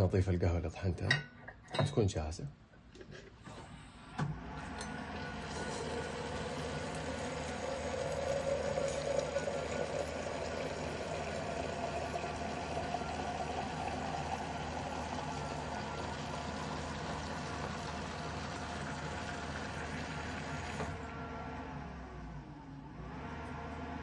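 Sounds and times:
tap water pouring into metal kettle: 0:04.8 - 0:21.0.

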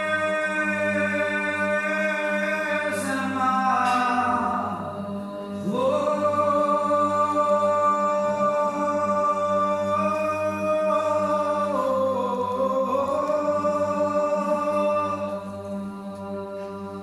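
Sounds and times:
unaccompanied liturgical chant: 0:00.0 - 0:17.0.

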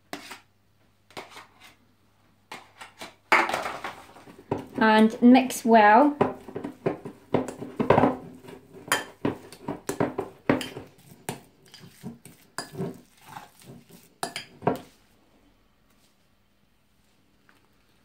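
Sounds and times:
fork scraping glass bowl: 0:10.6 - 0:14.9.

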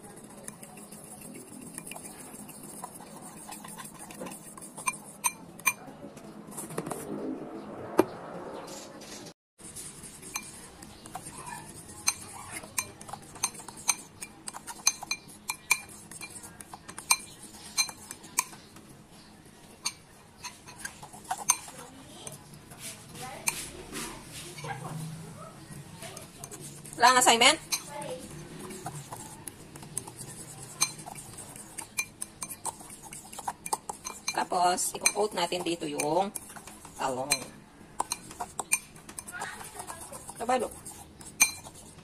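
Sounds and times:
fork clinking against glass bowl: 0:03.3 - 0:05.9, 0:11.2 - 0:18.6, 0:19.8 - 0:21.8, 0:26.1 - 0:27.9, 0:30.0 - 0:40.4, 0:41.3 - 0:41.8.

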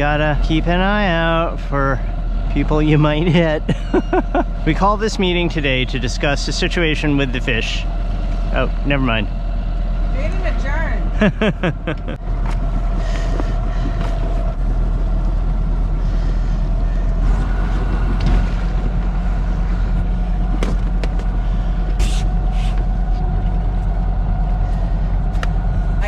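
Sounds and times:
boat engine humming: 0:00.0 - 0:26.0
knocks of fenders: 0:20.5 - 0:21.4.

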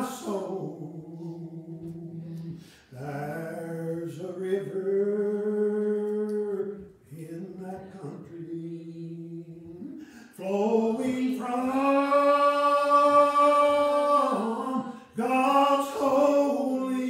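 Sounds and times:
man singing unaccompanied: 0:00.0 - 0:17.0
man breathing: 0:02.2 - 0:03.0, 0:10.0 - 0:10.4.

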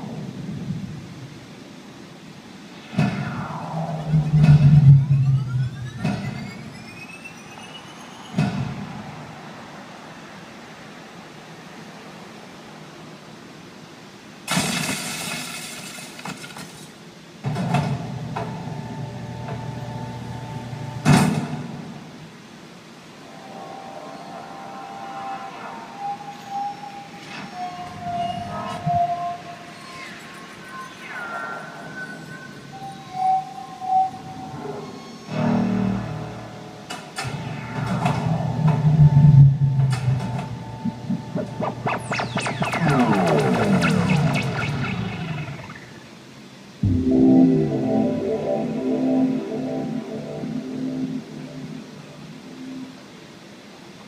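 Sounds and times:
electronic soundtrack music: 0:03.1 - 0:10.1, 0:34.9 - 0:53.4
low steady hum with higher tone: 0:31.8 - 0:54.0
low rumble: 0:38.0 - 0:46.1.

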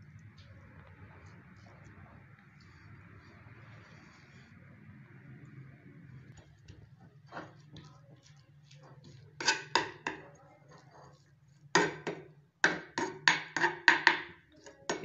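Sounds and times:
low steady hum: 0:00.0 - 0:13.2
spatula tapping a frying pan: 0:09.4 - 0:10.3, 0:11.7 - 0:15.0.

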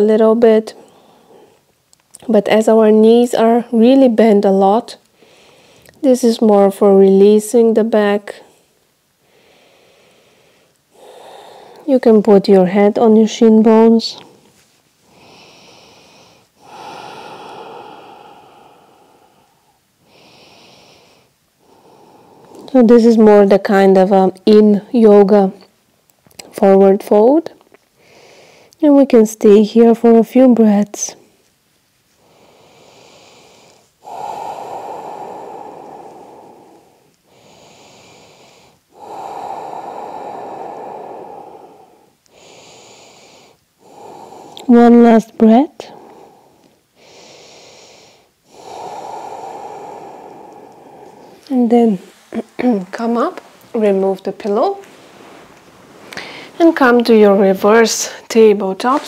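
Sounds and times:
person breathing slowly: 0:00.7 - 0:01.8, 0:05.0 - 0:06.0, 0:08.3 - 0:11.9, 0:13.8 - 0:22.8, 0:28.0 - 0:28.8, 0:32.1 - 0:59.0.

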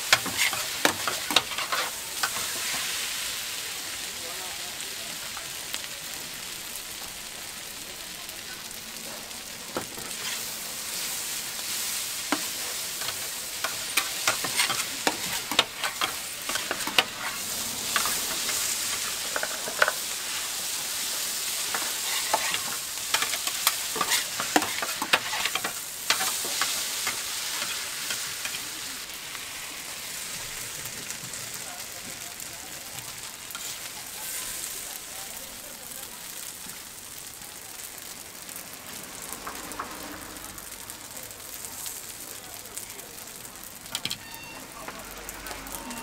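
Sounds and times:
noodles sizzling on griddle: 0:00.0 - 0:46.0
metal scraper scraping griddle: 0:12.3 - 0:18.4.

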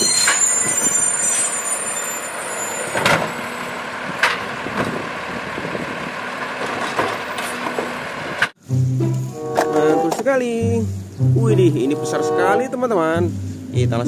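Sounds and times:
garbage truck engine running: 0:02.3 - 0:09.6.

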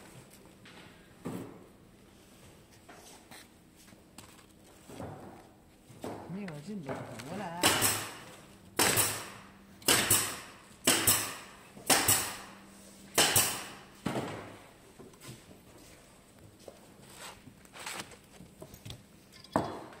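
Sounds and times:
sharp wooden knocks: 0:07.0 - 0:08.2, 0:08.8 - 0:12.4, 0:13.2 - 0:14.5.

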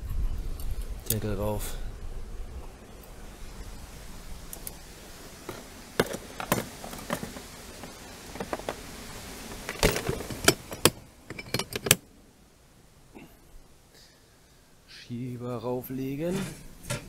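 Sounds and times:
metal tools clattering into case: 0:09.7 - 0:12.0.

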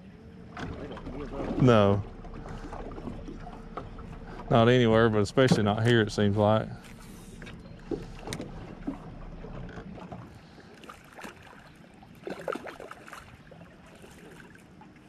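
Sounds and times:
low rumble: 0:00.0 - 0:12.2.

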